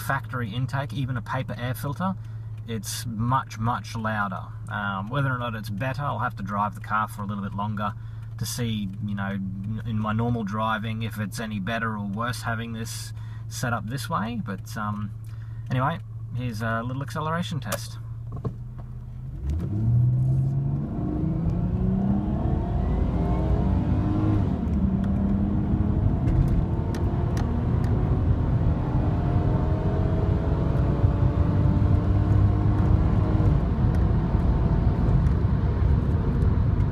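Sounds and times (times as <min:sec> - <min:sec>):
car engine revving hard: 0:19.2 - 0:36.8.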